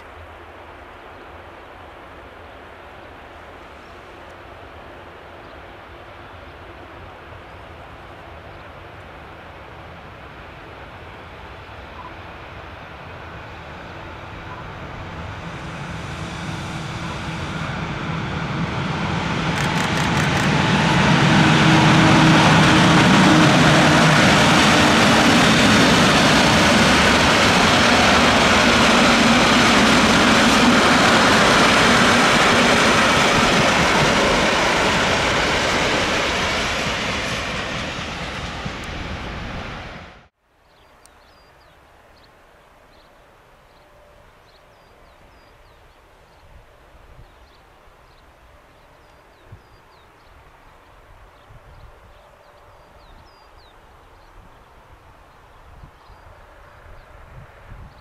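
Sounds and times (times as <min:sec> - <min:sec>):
freight train passing: 0:00.0 - 0:40.4, 0:43.8 - 0:58.0
train wheels on rails: 0:08.4 - 0:40.3.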